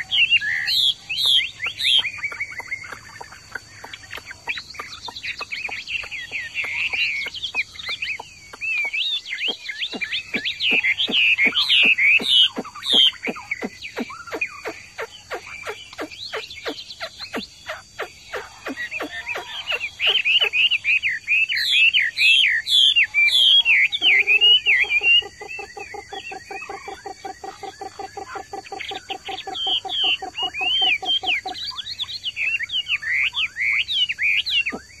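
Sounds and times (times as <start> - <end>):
bird singing whistled phrases: 0.0 - 26.7, 29.0 - 35.0.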